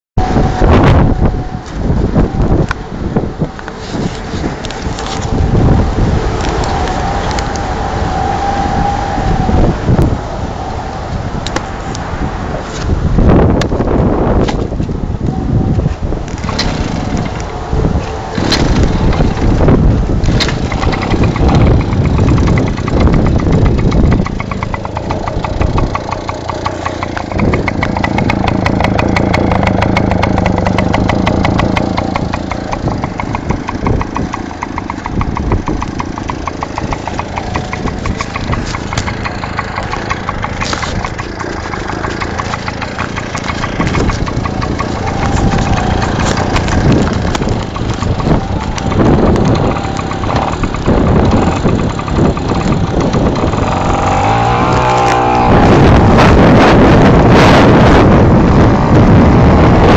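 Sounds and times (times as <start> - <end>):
moped engine idling: 16.0 - 59.8.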